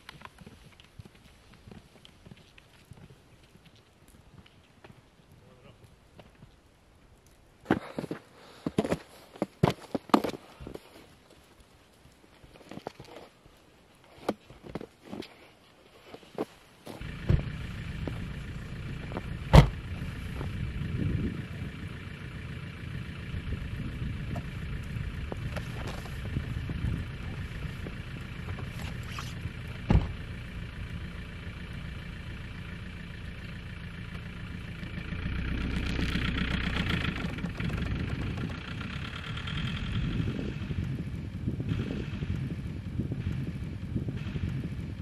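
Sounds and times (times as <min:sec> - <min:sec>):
car moving off through snow: 0:16.0 - 0:45.0
suv engine idling: 0:16.9 - 0:45.0.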